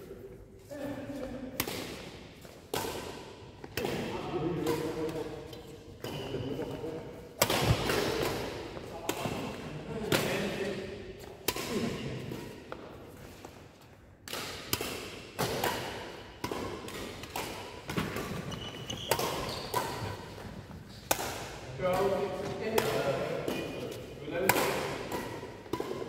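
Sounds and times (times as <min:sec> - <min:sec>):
racket striking shuttlecock: 0:01.5 - 0:05.3, 0:07.4 - 0:10.3, 0:11.4 - 0:13.6, 0:14.2 - 0:26.0.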